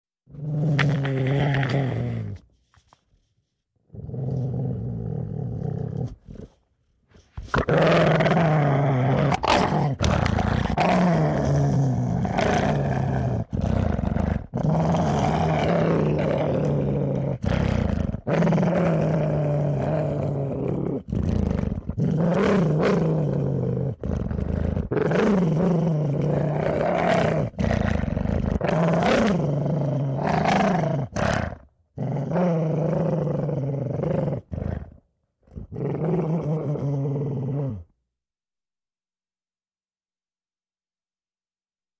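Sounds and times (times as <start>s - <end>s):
dog growling: 3.9s - 6.6s, 7.5s - 37.9s.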